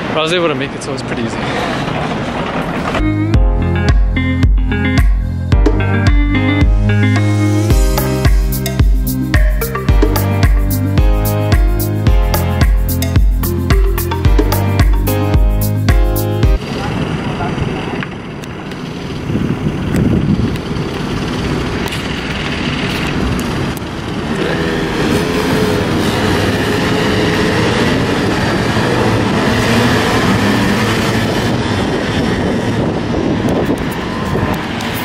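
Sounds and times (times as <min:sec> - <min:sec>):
go-kart engines: 0:00.0 - 0:03.0, 0:16.6 - 0:35.0
city traffic noise: 0:00.0 - 0:35.0.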